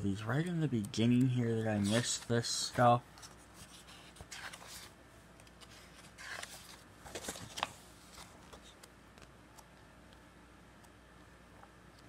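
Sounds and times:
paper pages rustling: 1.5s - 9.3s.

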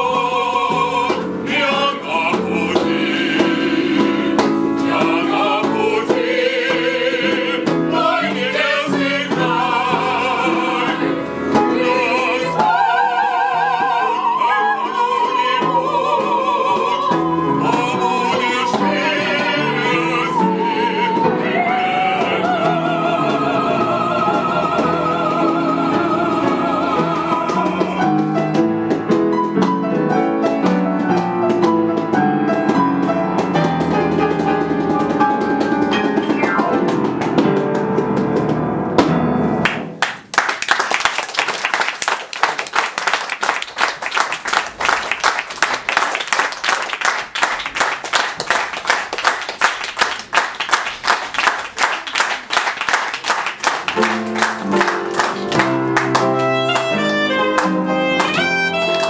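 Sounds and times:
ensemble singing with vibrato: 0.0s - 28.2s
instrumental music: 0.0s - 41.0s, 43.0s - 59.0s
audience applause: 39.6s - 59.0s.

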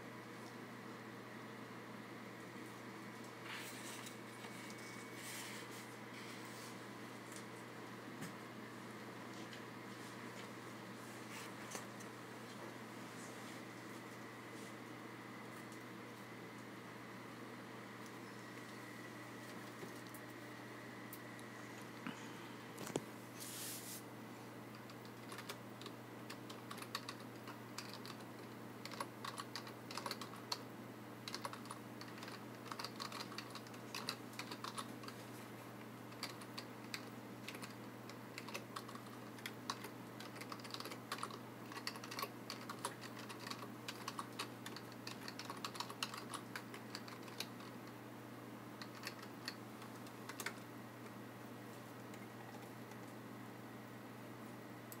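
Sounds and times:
steady low hum: 0.0s - 55.0s
keyboard typing: 24.7s - 30.6s, 31.2s - 35.2s, 36.1s - 47.9s, 48.8s - 50.6s.

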